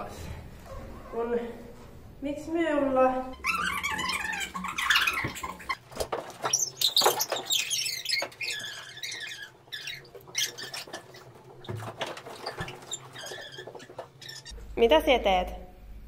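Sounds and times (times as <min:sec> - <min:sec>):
bare feet squeaking on floor: 0:03.4 - 0:14.6.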